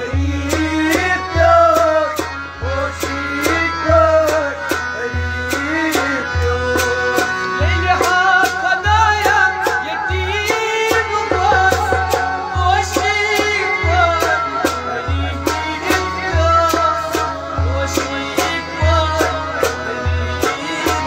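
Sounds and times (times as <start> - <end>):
man singing: 0.0 - 21.0.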